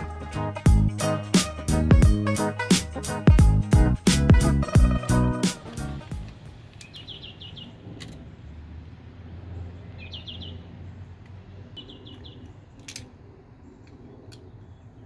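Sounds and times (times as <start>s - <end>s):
small bird chirping: 6.8s - 7.8s, 9.6s - 12.9s.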